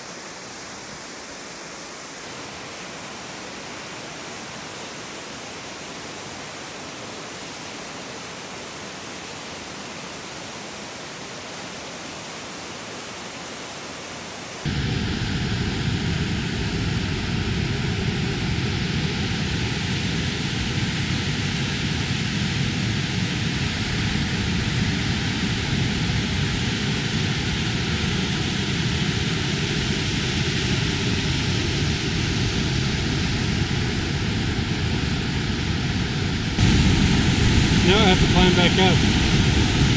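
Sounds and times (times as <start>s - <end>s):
waterfall rushing: 0.0s - 14.7s, 36.4s - 39.9s.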